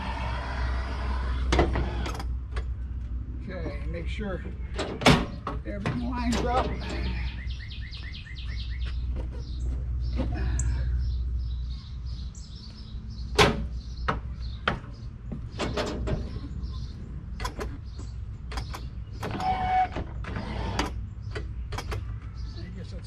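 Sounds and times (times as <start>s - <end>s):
footsteps on metal steps: 13.4s - 16.6s.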